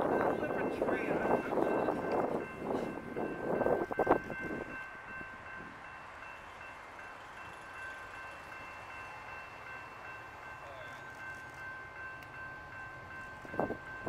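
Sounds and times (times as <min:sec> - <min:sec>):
crossing warning bells ringing: 0:00.0 - 0:14.0.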